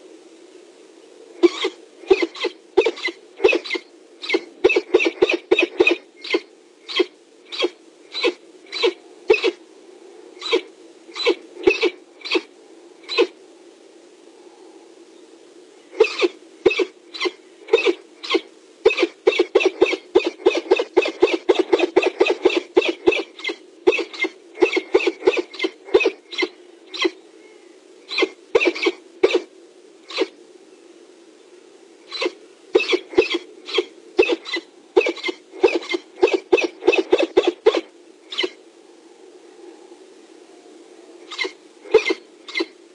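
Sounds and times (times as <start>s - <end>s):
faint steady hum: 0.0s - 42.9s
falcon cackling: 1.4s - 9.6s, 10.4s - 12.5s, 16.0s - 27.2s, 32.1s - 38.6s, 41.3s - 42.8s.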